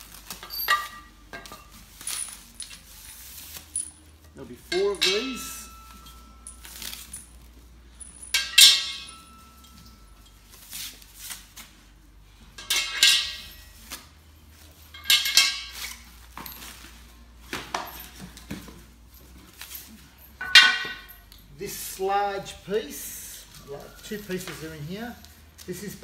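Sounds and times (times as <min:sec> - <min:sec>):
metal bars clanking: 0:00.0 - 0:02.9, 0:03.7 - 0:10.5, 0:12.5 - 0:13.8, 0:14.8 - 0:16.7, 0:20.3 - 0:21.4.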